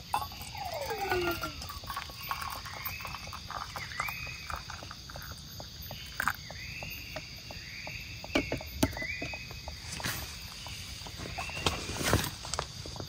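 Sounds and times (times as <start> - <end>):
water pouring into metal mug: 0.0 - 6.9
animal call rising: 0.2 - 1.8.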